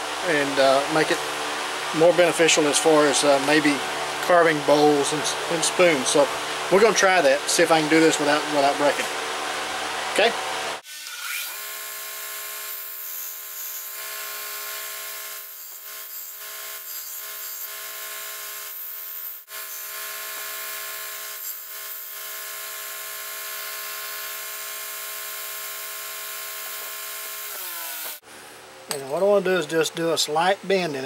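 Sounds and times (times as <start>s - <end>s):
belt sander running: 0.2s - 28.2s.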